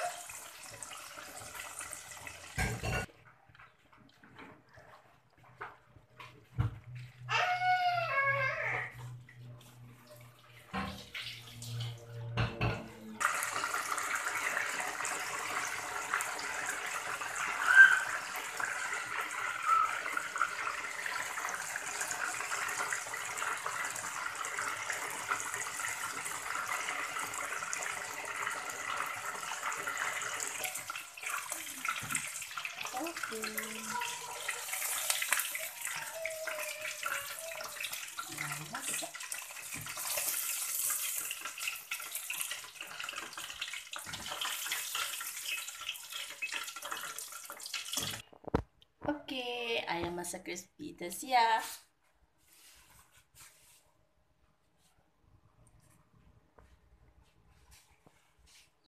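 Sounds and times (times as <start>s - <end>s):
chicken deep-frying in oil: 0.0s - 3.1s, 5.8s - 48.6s.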